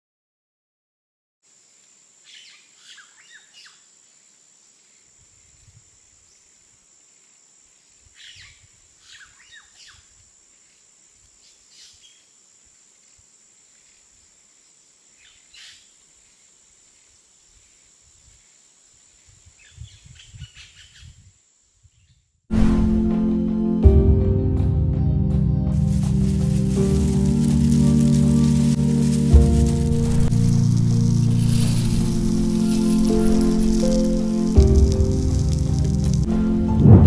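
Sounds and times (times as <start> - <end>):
low rumbles: 24.0 - 37.0.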